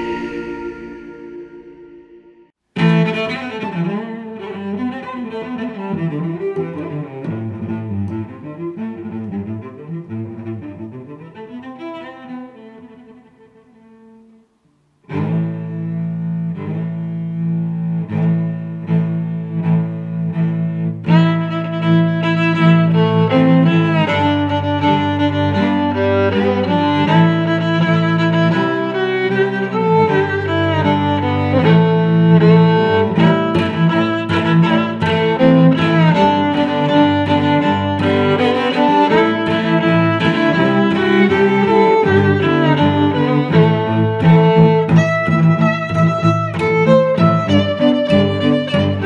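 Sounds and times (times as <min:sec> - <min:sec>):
bowed strings music: 0:00.0 - 0:49.0
low cello line: 0:00.0 - 0:49.0.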